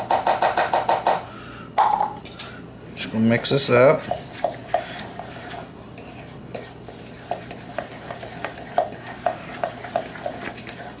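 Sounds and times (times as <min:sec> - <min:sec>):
scraping in a steel mixing bowl: 0:03.3 - 0:11.0.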